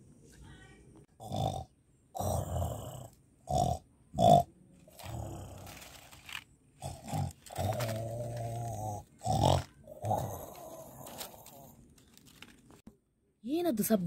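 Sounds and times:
tiger growling and grunting: 0:01.2 - 0:11.8.

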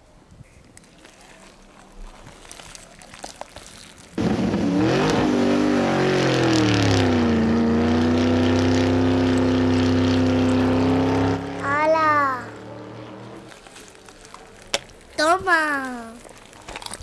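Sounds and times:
car engine droning: 0:04.2 - 0:14.4.

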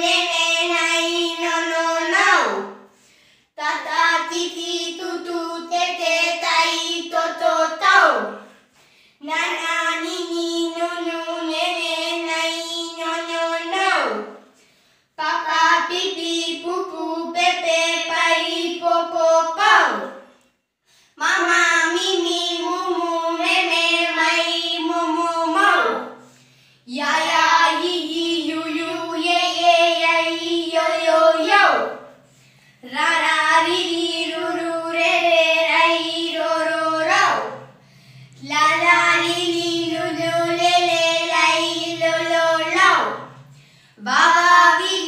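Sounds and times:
child and woman singing: 0:21.2 - 0:26.0, 0:26.9 - 0:32.0, 0:32.8 - 0:37.6, 0:38.4 - 0:43.2, 0:44.0 - 0:45.0.

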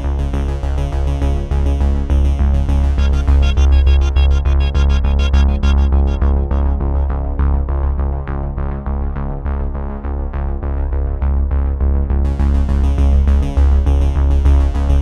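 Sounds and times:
synthesizer music with pulsing beat: 0:02.1 - 0:08.0
hissing high synth layer: 0:03.0 - 0:07.1.

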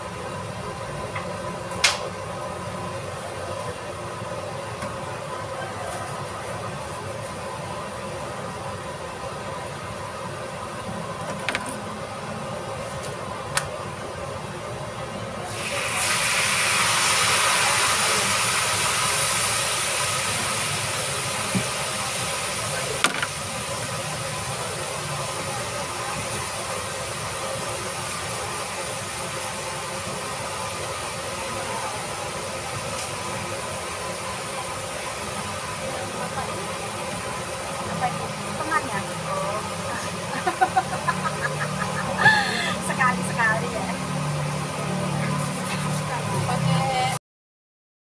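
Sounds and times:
food sizzling in hot oil: 0:15.4 - 0:47.1.

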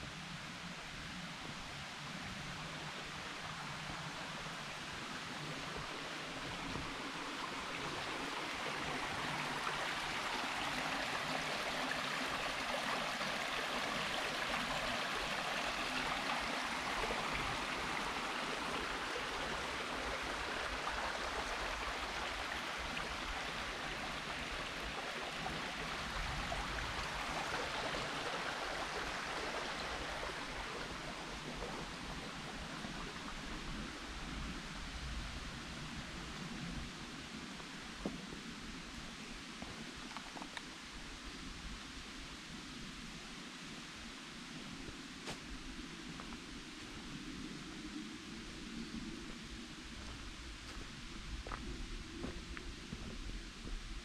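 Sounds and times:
stream water rushing: 0:00.0 - 0:54.0.

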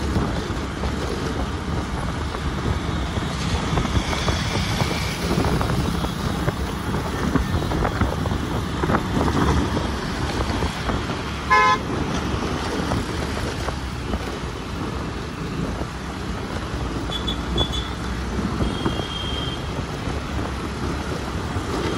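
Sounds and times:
road traffic rumble: 0:00.0 - 0:21.9
car horn toot: 0:11.5 - 0:11.9, 0:17.1 - 0:18.0, 0:18.6 - 0:19.7.

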